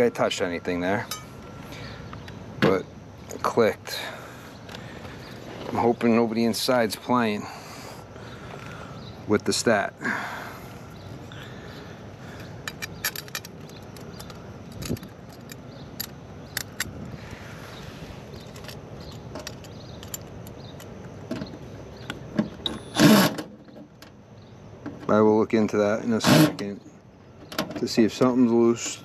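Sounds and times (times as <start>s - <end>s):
steady background hiss: 0.0s - 29.0s
small metallic clicks and rattles: 12.4s - 16.9s, 18.4s - 22.2s.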